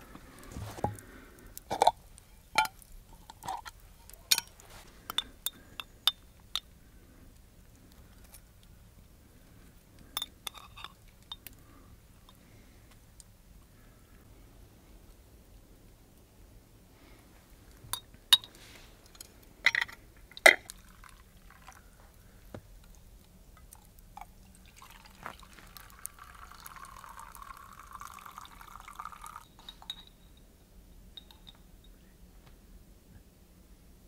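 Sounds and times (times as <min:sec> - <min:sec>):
metal spoon clinking on glass jar: 0:10.2 - 0:11.0, 0:29.6 - 0:30.4, 0:31.2 - 0:31.6
liquid pouring into a glass: 0:20.7 - 0:21.8, 0:24.2 - 0:30.0.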